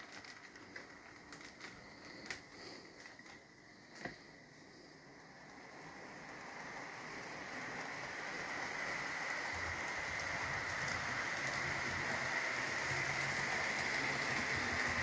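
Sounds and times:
train motor whine: 5.2 - 15.0
model train rolling rumble: 5.3 - 15.0.

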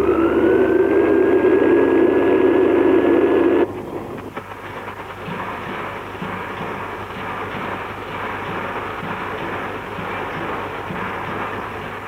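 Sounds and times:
steam locomotive whistle: 0.0 - 3.6
slow-moving locomotive: 0.0 - 12.0.

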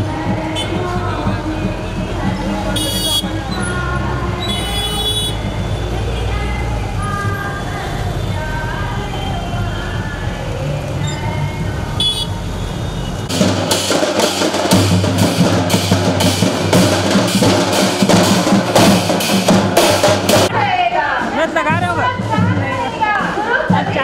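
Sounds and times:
procession drums beating: 0.0 - 6.3, 12.0 - 24.0
street noise: 0.0 - 24.0.

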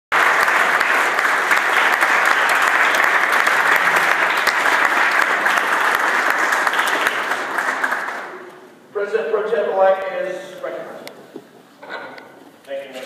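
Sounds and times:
crowd applauding: 0.1 - 8.7.

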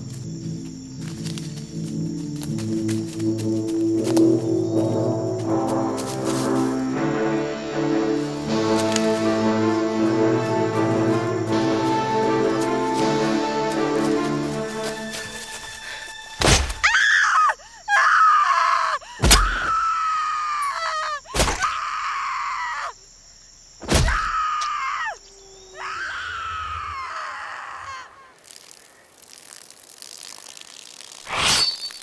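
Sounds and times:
person screaming: 25.8 - 28.4.

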